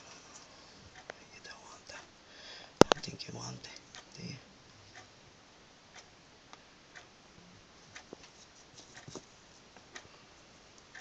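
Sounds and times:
faint clicks and taps: 0:02.8 - 0:03.1, 0:07.8 - 0:10.1.

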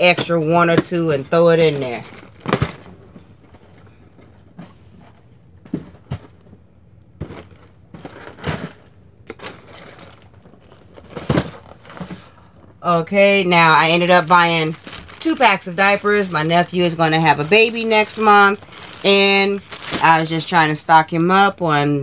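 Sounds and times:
cardboard boxes knocking: 0:05.6 - 0:06.5, 0:07.2 - 0:12.3
plastic wrappers crinkling: 0:07.2 - 0:12.8, 0:13.4 - 0:20.9.

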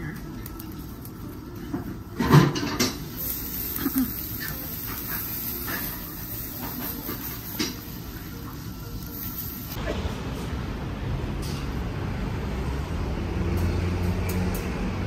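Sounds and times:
food sizzling on a griddle: 0:00.2 - 0:10.1.

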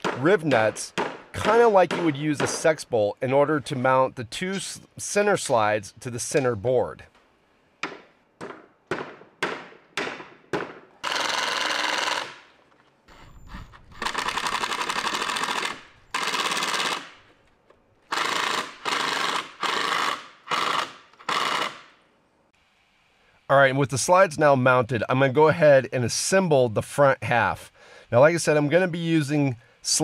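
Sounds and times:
impact driver hammering: 0:00.0 - 0:02.6, 0:07.8 - 0:12.4.

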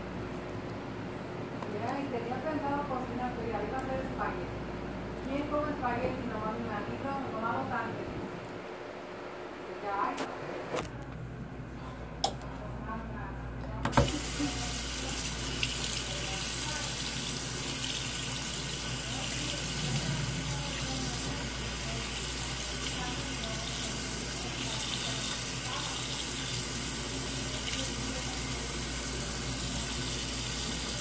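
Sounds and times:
faucet water pouring into sink: 0:13.9 - 0:31.0.

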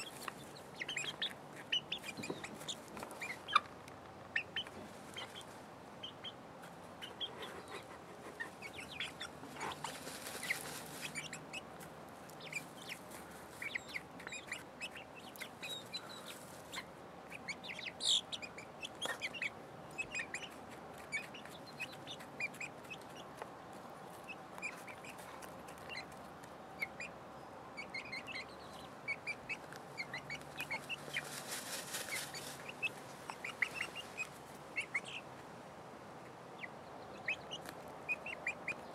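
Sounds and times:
scratching and pecking ticks: 0:00.0 - 0:27.1, 0:27.8 - 0:35.5, 0:37.2 - 0:38.9
hens clucking softly: 0:00.0 - 0:35.5
rustling in sand: 0:09.5 - 0:11.5, 0:30.8 - 0:34.5.

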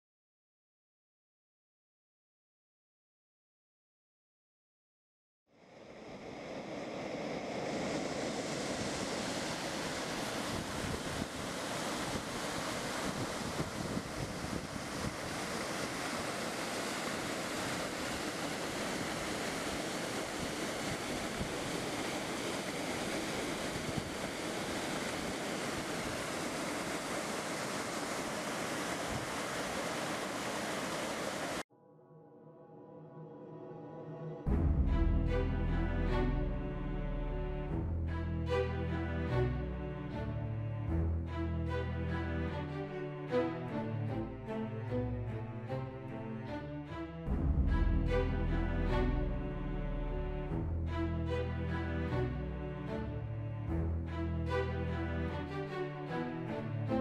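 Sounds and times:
waterfall rushing: 0:07.6 - 0:31.6.

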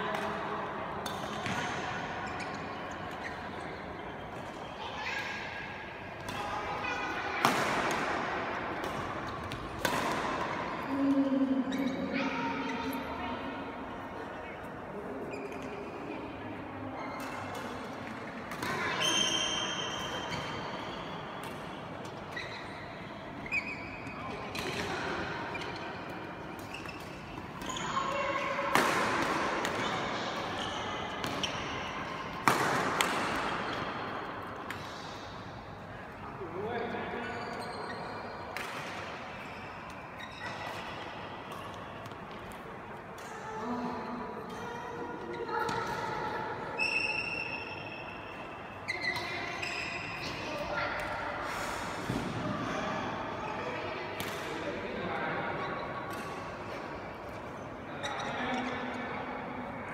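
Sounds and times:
racket hitting shuttlecock: 0:07.4 - 0:10.6, 0:26.6 - 0:35.0, 0:54.2 - 0:54.6
shoes squeaking on court: 0:22.1 - 0:28.3, 0:29.6 - 0:32.2, 0:37.2 - 0:38.4, 0:39.3 - 0:42.2, 0:48.9 - 0:50.4
racket striking shuttlecock: 0:32.4 - 0:33.8.

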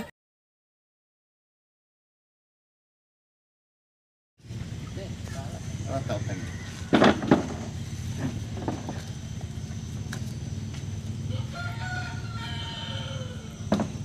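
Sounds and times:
steady low rumble: 0:04.4 - 0:12.4
rooster crowing: 0:05.4 - 0:09.4, 0:11.2 - 0:14.0.

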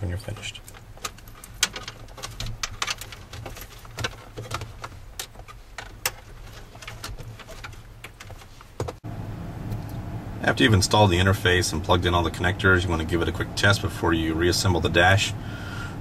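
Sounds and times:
steady low hum: 0:00.0 - 0:16.0
plastic connectors clicking and rattling: 0:00.3 - 0:08.9.

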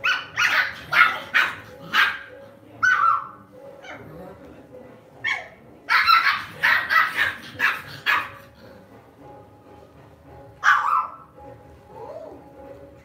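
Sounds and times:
puppy barking: 0:00.0 - 0:04.0, 0:05.2 - 0:08.5, 0:10.6 - 0:11.3.

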